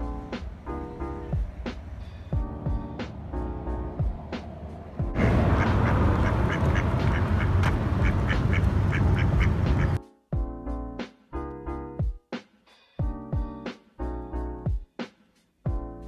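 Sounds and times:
piano music: 0.0 - 12.1
loud low rumble: 3.6 - 10.0
ducks quacking: 5.2 - 10.0.

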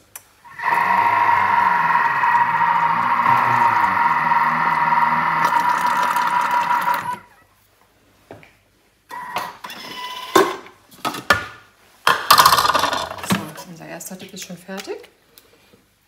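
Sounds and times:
food processor motor whining: 0.5 - 7.3.

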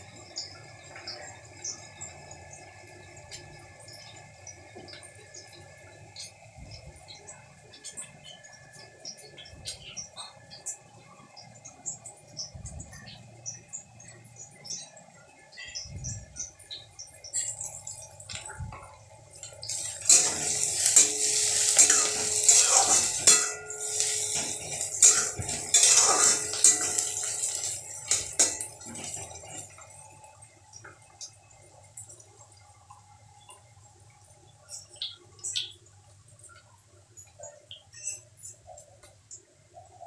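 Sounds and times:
metal spatula scraping a pan: 19.6 - 29.7.

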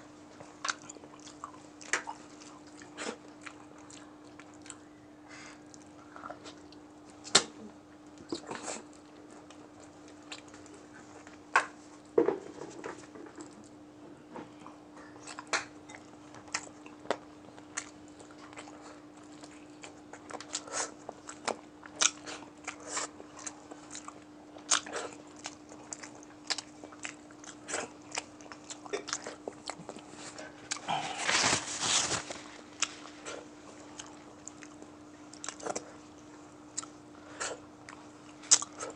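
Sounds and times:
chewing and crunching food: 0.2 - 38.9.

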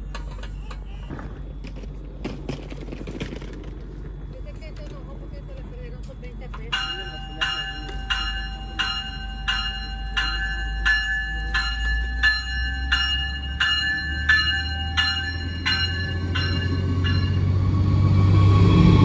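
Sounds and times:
diesel engine rumble: 0.0 - 19.0
train warning bell ringing: 5.7 - 18.5.

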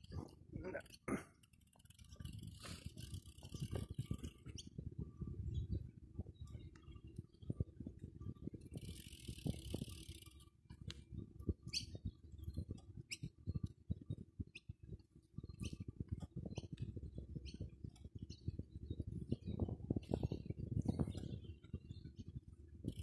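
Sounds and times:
bicycle rattling over grass: 0.0 - 23.0
high bird chirps: 11.6 - 12.2.

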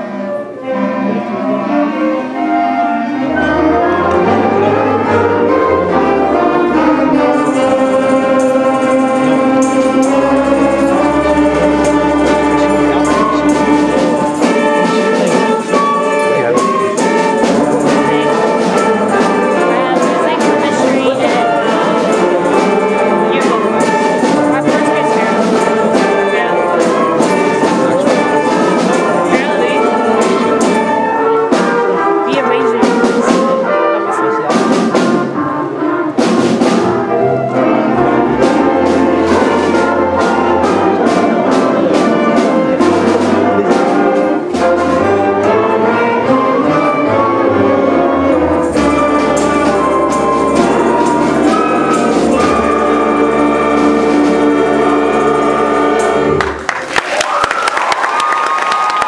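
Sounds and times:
concert band playing: 0.0 - 59.0.

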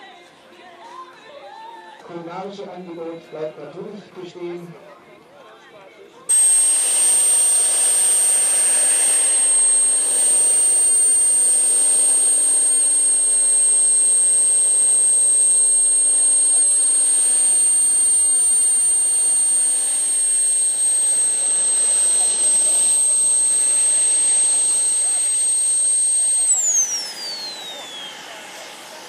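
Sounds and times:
jet turbines running: 6.3 - 29.0
piercing high whine: 6.3 - 29.0.

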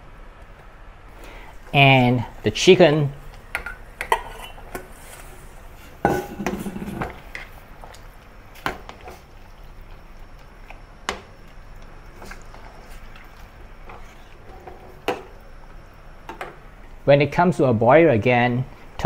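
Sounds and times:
metal bowl scraping a pot: 4.1 - 7.3
ladle clinking against a pot: 6.0 - 7.1.

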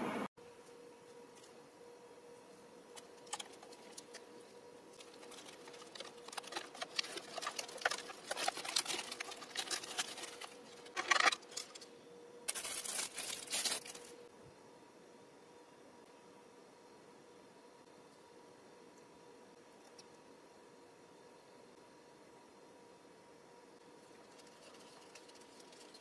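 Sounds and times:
plastic rustling: 3.1 - 11.9, 12.5 - 14.2
plastic lid crinkling: 5.0 - 11.8.

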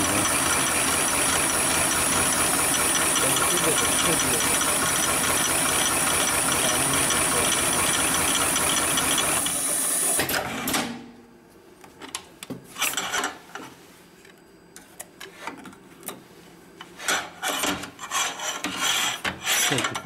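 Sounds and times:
sewing machine clattering: 0.0 - 9.6.

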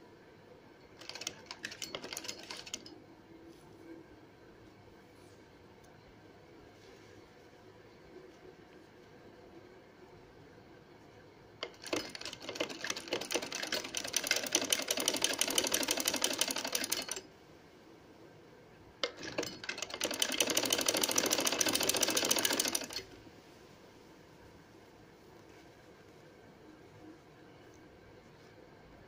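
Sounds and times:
sewing machine stitching: 1.0 - 2.9, 11.6 - 17.2, 19.0 - 23.2.

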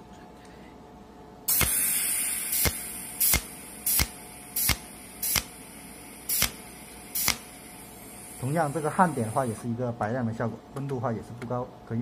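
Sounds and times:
welding zaps: 1.5 - 5.6, 6.2 - 7.6, 8.2 - 9.6
steady hiss: 1.5 - 9.8.

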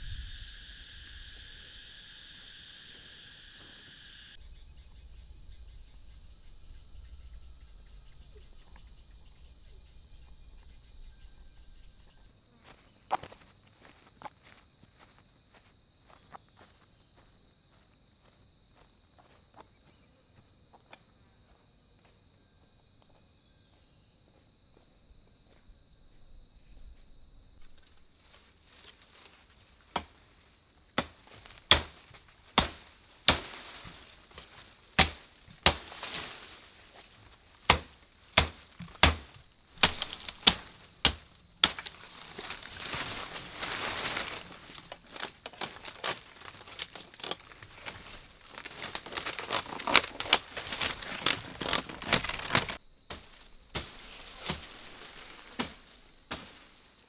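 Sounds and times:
high insect buzz: 0.0 - 14.6
leaves and stems rustling: 27.6 - 30.6, 31.2 - 57.0
blade chopping plant stems: 31.0 - 36.2, 37.6 - 43.7.

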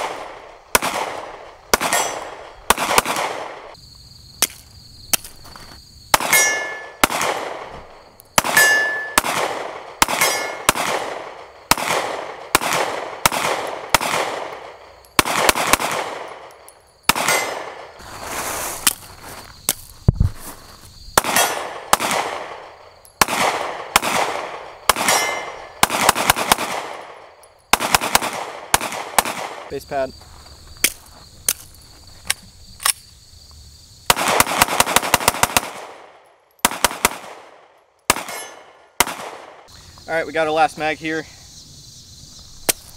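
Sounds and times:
pistol shots echoing: 0.0 - 3.8, 6.1 - 7.8, 8.4 - 17.9, 21.2 - 29.8, 34.1 - 39.7
metallic ring: 8.6 - 9.2
faint insect buzz: 39.7 - 42.9.

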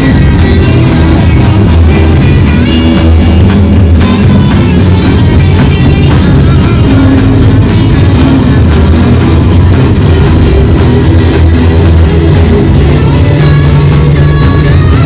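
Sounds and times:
amplified electric guitar rock music: 0.0 - 15.0
drums: 0.0 - 15.0.

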